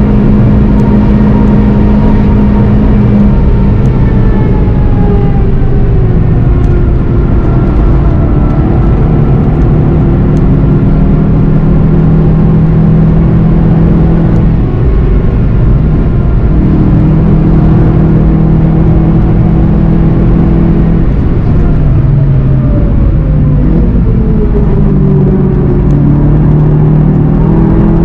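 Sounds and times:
car engine at steady revs: 0.0s - 28.0s
wind and road noise: 0.0s - 28.0s.

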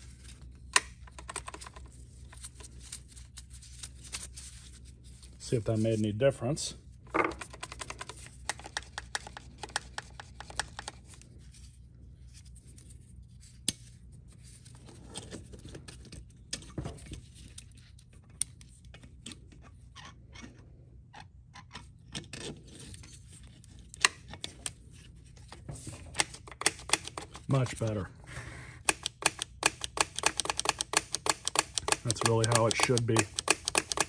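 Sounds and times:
low steady hum: 0.0s - 34.0s
small clicks and scratching: 28.9s - 34.0s.

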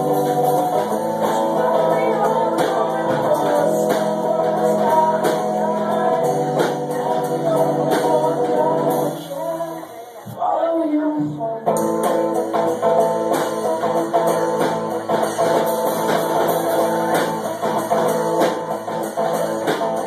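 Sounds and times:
live band playing: 0.0s - 10.3s, 11.2s - 20.0s
drum kit steady beat: 0.0s - 10.4s, 11.6s - 20.0s
person singing lead vocal: 0.0s - 12.7s
electric guitar: 0.0s - 20.0s.

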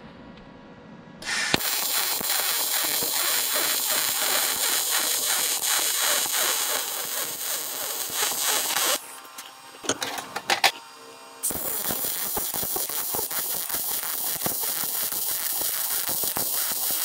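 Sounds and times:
welder arc crackling and hissing: 1.2s - 9.3s, 11.4s - 17.0s.

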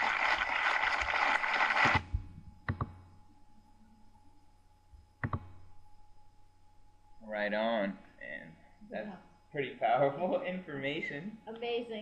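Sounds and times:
audience applause: 0.0s - 2.0s
faint steady hum: 0.0s - 12.0s.

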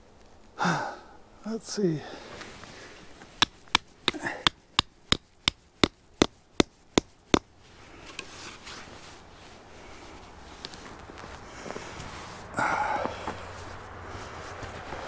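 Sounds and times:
hammer striking tent stake: 3.4s - 7.5s.

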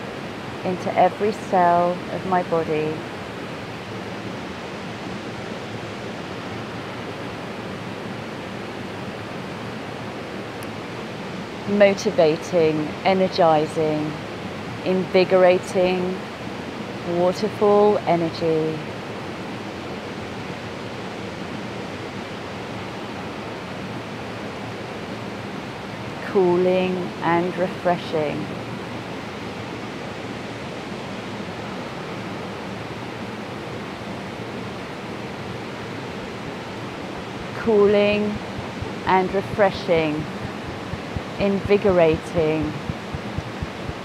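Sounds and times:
waterfall rushing over rocks: 40.2s - 41.4s, 42.2s - 44.0s.

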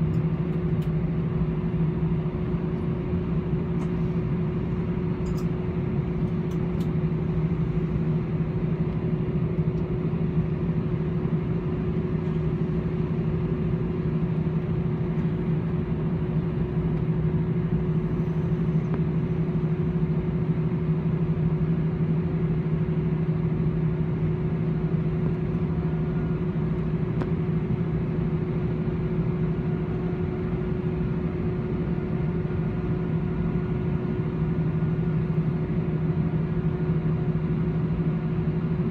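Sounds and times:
jet engines humming: 0.0s - 38.9s.

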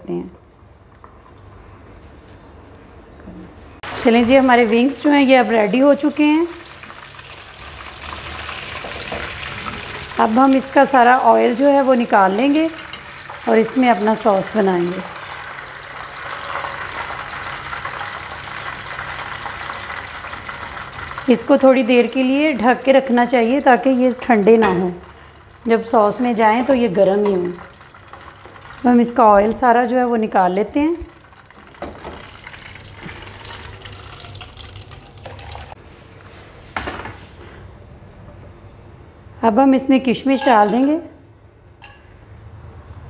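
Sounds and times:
frying oil sizzling: 3.8s - 29.8s, 30.8s - 35.8s
oil pouring from a pan: 27.6s - 28.9s, 31.2s - 35.8s.

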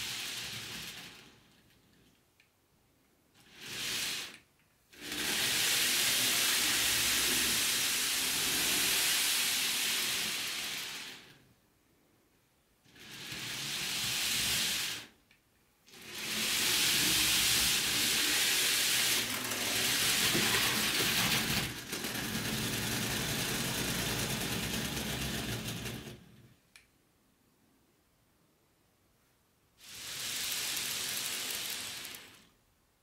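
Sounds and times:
model train whirring: 0.0s - 1.7s, 3.4s - 11.4s, 12.9s - 15.2s, 15.9s - 26.4s, 29.8s - 32.6s.

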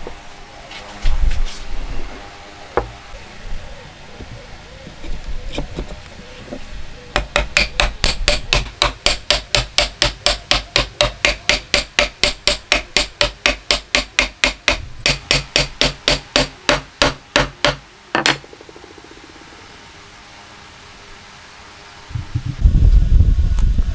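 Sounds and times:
wooden mallet knocking wood: 7.2s - 18.7s.

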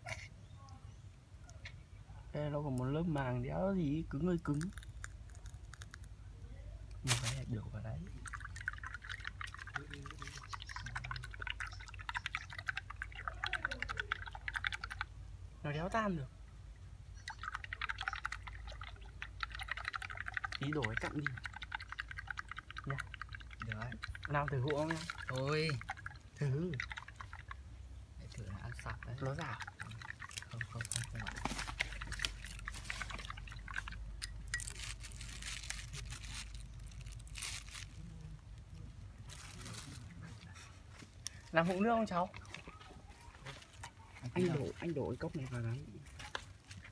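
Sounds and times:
liquid swishing: 7.1s - 15.2s, 17.2s - 38.0s
spoon clinking against glass: 34.2s - 34.9s
plastic bag rustling: 34.5s - 41.6s.

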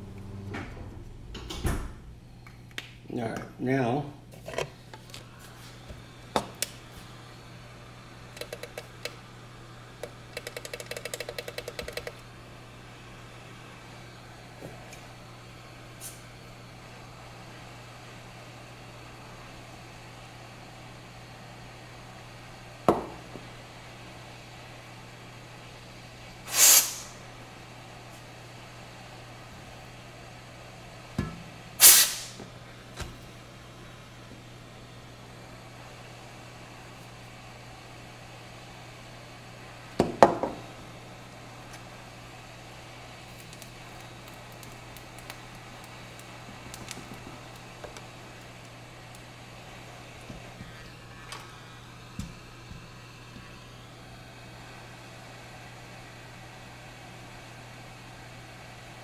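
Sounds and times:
hot-air tool humming and hissing: 0.0s - 59.0s
compressed air spray hiss: 26.4s - 27.2s, 31.8s - 32.4s.

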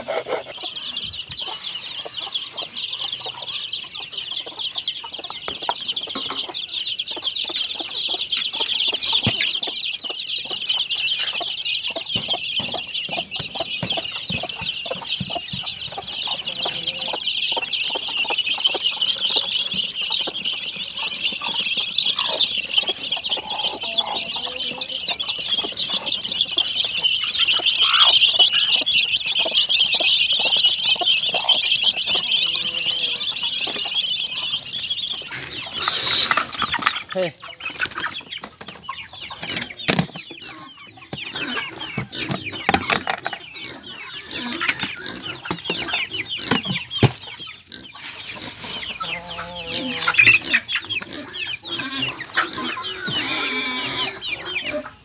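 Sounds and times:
chickens clucking: 0.0s - 55.0s
scattered knocks and clatter: 12.1s - 16.2s, 42.0s - 43.4s.

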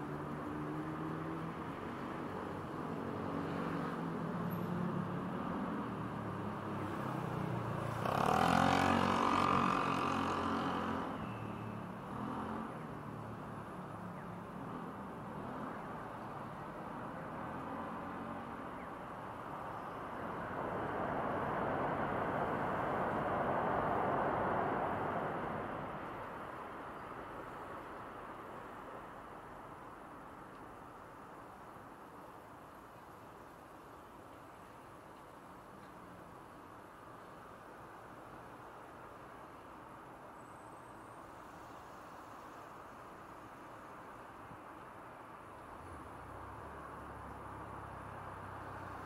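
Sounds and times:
road traffic hum: 0.0s - 49.0s
vehicle accelerating past: 7.8s - 11.4s.

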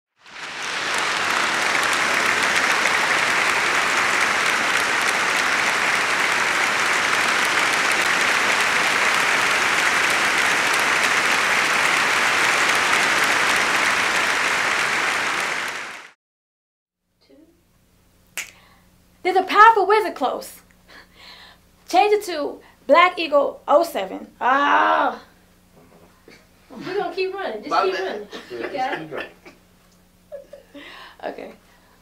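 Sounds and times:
audience applause: 0.2s - 16.2s.

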